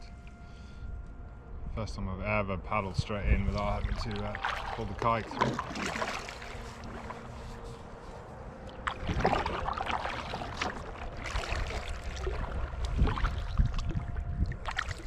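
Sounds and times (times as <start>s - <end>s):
kayak paddle splashing water: 3.4s - 7.8s, 8.6s - 15.0s.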